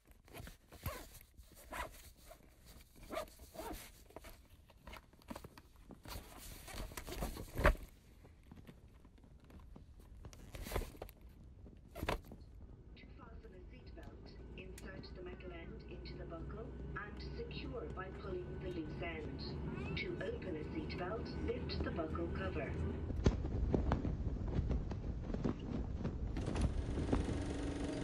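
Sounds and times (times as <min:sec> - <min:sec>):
rustling and clicking handling noises: 0:00.0 - 0:12.7.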